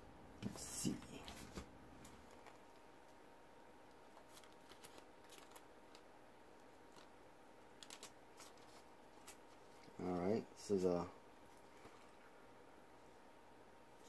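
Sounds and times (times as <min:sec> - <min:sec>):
faint steady hum: 0:00.0 - 0:14.0
paper rustling and clicks: 0:04.2 - 0:06.0, 0:07.8 - 0:09.9.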